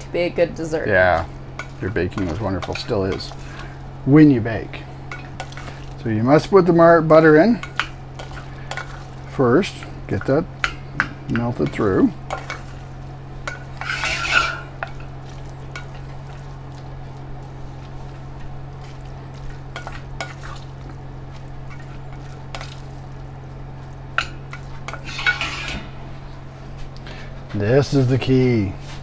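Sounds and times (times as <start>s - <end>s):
steady low hum: 0.0s - 29.0s
spoon scraping metal pot: 13.5s - 15.0s, 24.9s - 25.8s.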